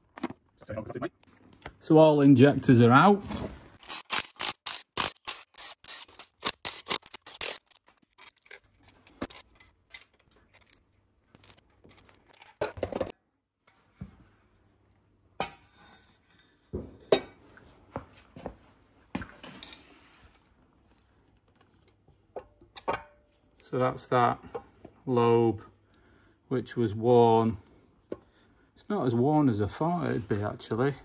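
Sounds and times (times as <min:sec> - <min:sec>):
metal engine parts clinking: 0:04.1 - 0:13.1.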